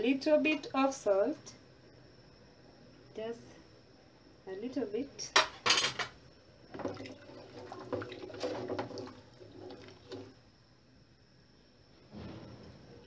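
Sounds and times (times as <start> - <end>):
spoon stirring broth in a pot: 6.7 - 10.4.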